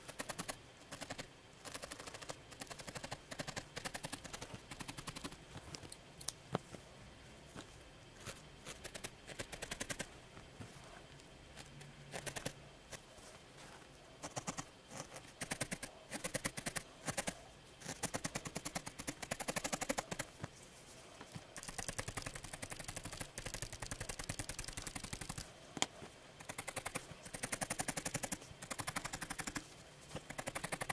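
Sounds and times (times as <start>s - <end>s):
felting needle clicking into wool: 0.0s - 6.6s, 8.2s - 10.1s, 14.2s - 20.3s, 21.6s - 29.6s, 30.2s - 30.9s.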